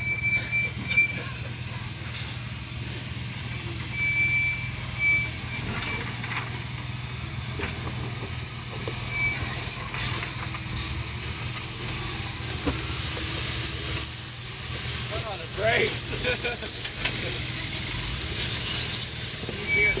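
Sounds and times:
engine running low: 0:00.0 - 0:20.0.

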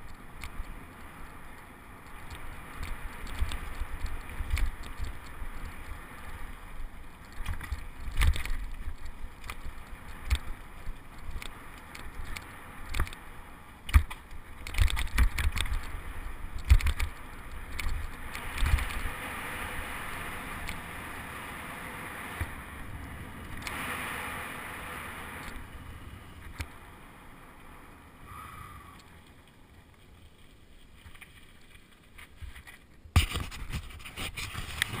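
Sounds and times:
bike tyres rolling on dirt: 0:00.0 - 0:35.0
bike rattling and knocking: 0:13.9 - 0:19.2.

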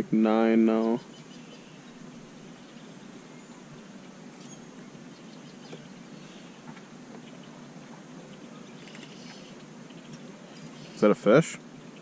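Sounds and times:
faint river ambience: 0:00.0 - 0:12.0.

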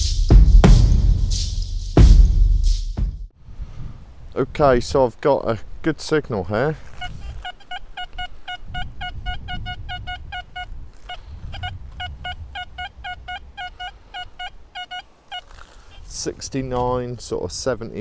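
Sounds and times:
metal detector beeping: 0:07.0 - 0:15.0.

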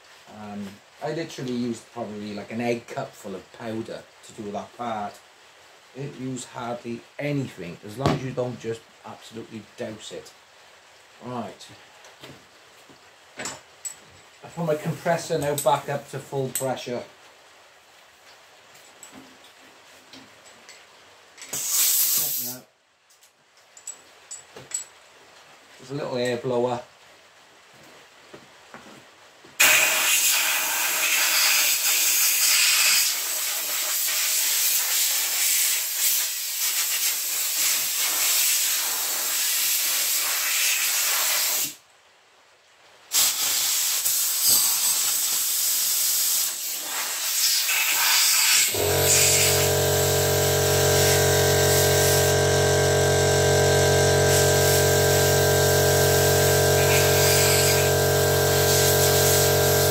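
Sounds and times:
compressed air hissing: 0:21.5 - 0:22.6, 0:29.6 - 0:41.8, 0:43.1 - 0:59.9
air compressor humming: 0:48.6 - 0:59.9.

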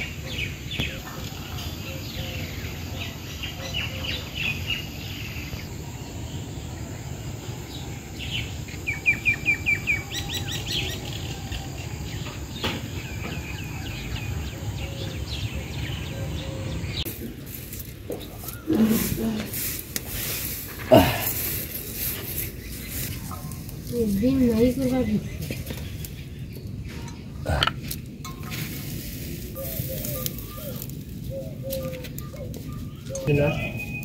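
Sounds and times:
small birds chirping: 0:00.0 - 0:34.0
loud clear chirps: 0:32.7 - 0:34.0.

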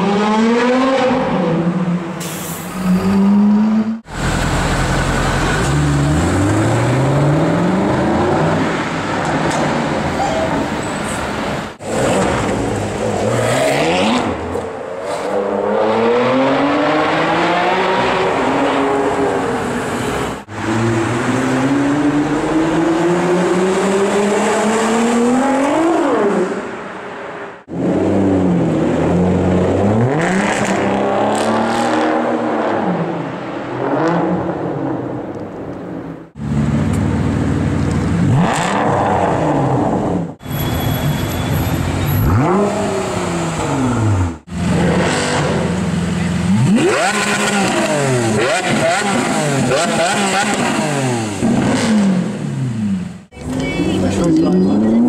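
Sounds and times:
sports car engines revving: 0:11.7 - 0:26.7, 0:27.6 - 0:35.3, 0:36.3 - 0:40.4, 0:41.8 - 0:55.0.

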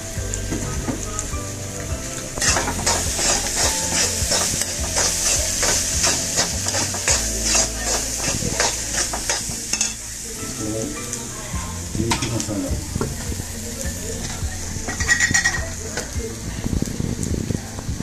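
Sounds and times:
onions sizzling in a pan: 0:00.0 - 0:18.0
metal spoon scraping a pan: 0:02.4 - 0:10.0, 0:14.2 - 0:15.7.

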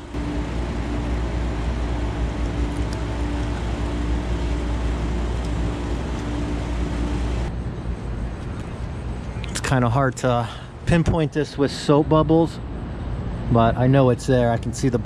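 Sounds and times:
constant rushing noise: 0:00.0 - 0:15.0
low mechanical hum: 0:00.0 - 0:15.0.

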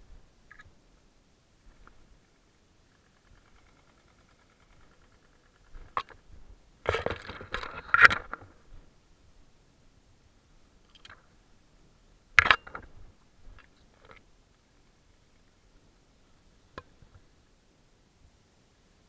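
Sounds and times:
grass rustling against camera: 0:00.0 - 0:08.9
sharp clicks: 0:02.9 - 0:06.2.

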